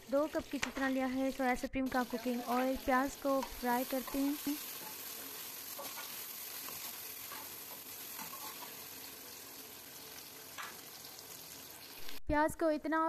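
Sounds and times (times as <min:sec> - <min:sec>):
onions sizzling in hot oil: 0:00.0 - 0:12.2
metal ladle scraping pan: 0:03.4 - 0:08.9.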